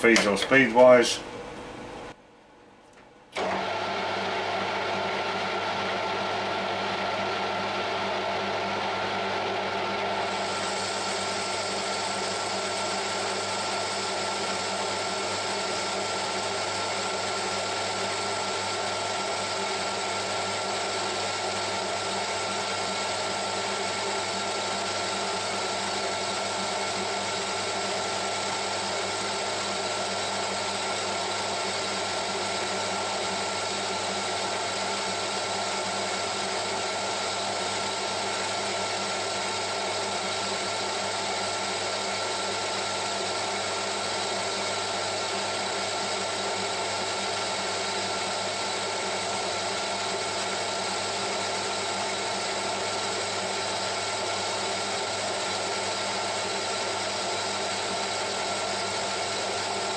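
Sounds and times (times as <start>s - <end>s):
metal lathe running: 3.4s - 59.9s.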